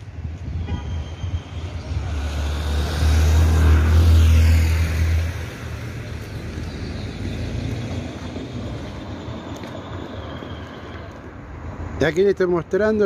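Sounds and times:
street traffic noise: 0:00.0 - 0:13.0
heavy vehicle engine humming: 0:03.9 - 0:12.0.

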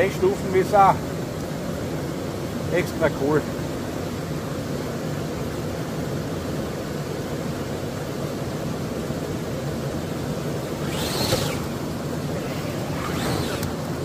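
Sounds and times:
toy truck electric motor drone: 0:10.7 - 0:13.8
toy truck tipping over: 0:10.8 - 0:11.7, 0:12.4 - 0:13.7.

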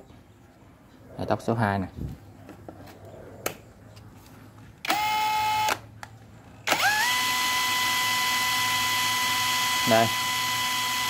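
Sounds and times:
drill motor whining: 0:04.8 - 0:05.8, 0:06.7 - 0:11.0.

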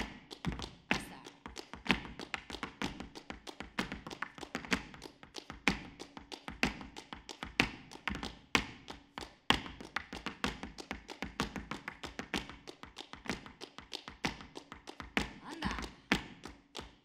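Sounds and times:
dance shoes tapping on wooden stage: 0:00.0 - 0:17.0.

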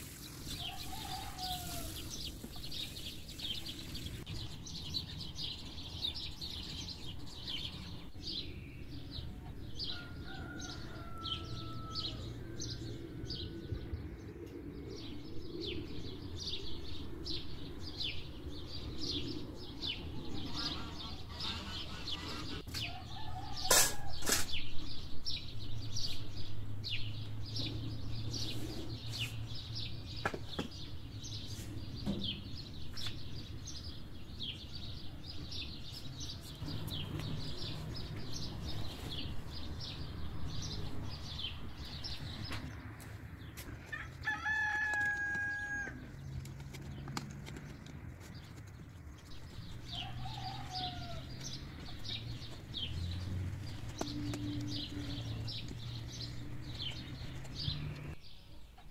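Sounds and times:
small birds chirping: 0:00.0 - 0:58.9
rooster crowing: 0:00.6 - 0:02.1, 0:09.8 - 0:12.6, 0:22.9 - 0:24.2, 0:43.9 - 0:46.0, 0:49.9 - 0:51.4.

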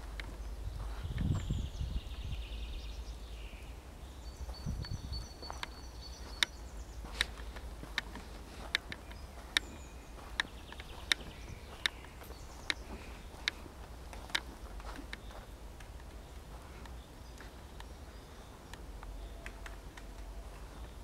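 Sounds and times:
forest background: 0:00.0 - 0:21.0
woodpecker tapping on wood: 0:05.5 - 0:16.2.

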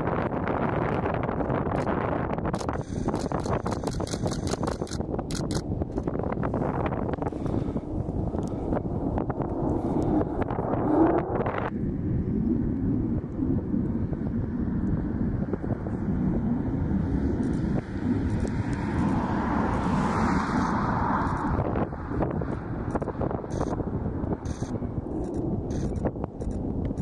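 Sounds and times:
distant jet engine: 0:00.0 - 0:27.0
wind buffeting microphone: 0:00.0 - 0:27.0.

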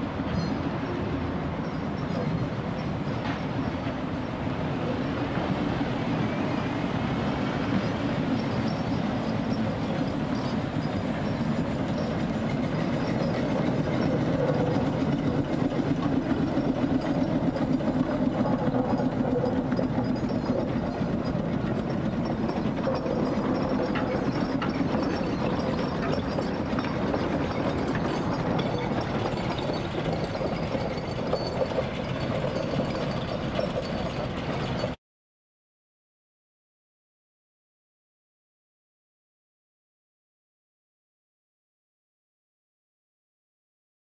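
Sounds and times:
steam engine mechanical clatter: 0:07.6 - 0:35.0.

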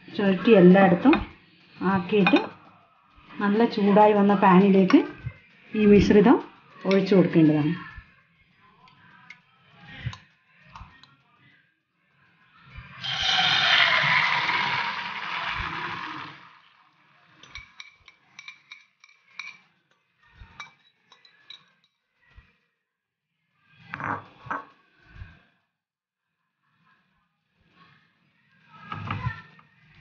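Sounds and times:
fork scraping glass bowl: 0:01.1 - 0:03.8, 0:13.0 - 0:16.6
batter sizzling in hot oil: 0:13.0 - 0:16.8.

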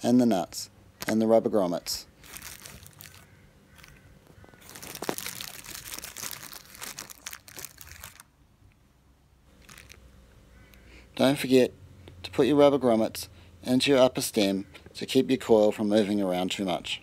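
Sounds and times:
plastic zip bag crinkling: 0:02.2 - 0:08.3, 0:09.6 - 0:10.0.

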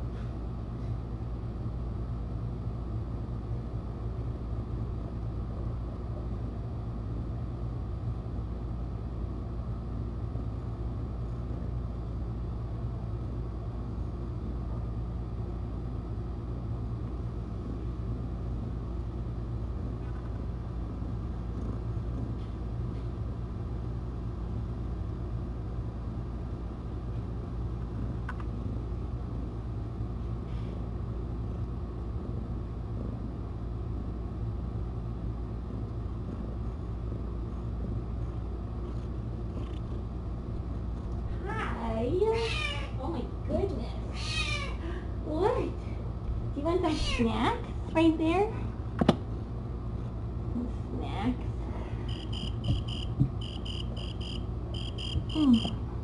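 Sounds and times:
cat purring: 0:21.4 - 0:22.4.

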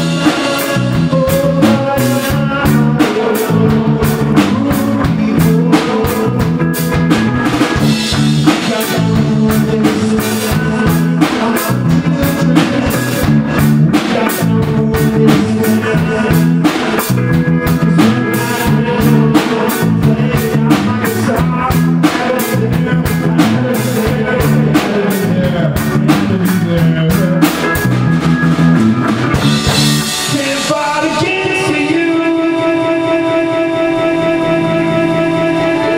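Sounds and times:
drum kit: 0:00.0 - 0:35.9
live rock band: 0:00.0 - 0:35.9
guitar chord ringing: 0:32.3 - 0:35.9.

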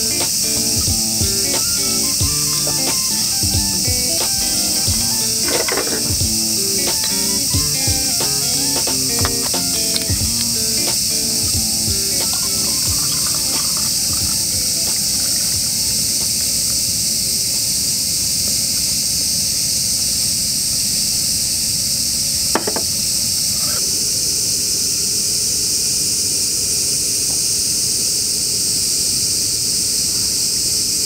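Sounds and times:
beer fizzing in a glass: 0:11.7 - 0:15.8.

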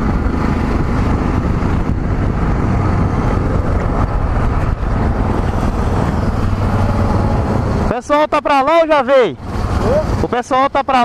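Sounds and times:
wind buffeting microphone: 0:00.0 - 0:08.0.

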